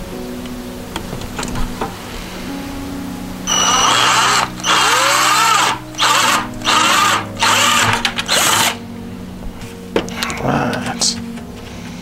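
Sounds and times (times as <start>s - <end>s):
cordless drill boring through plastic: 3.5s - 8.8s.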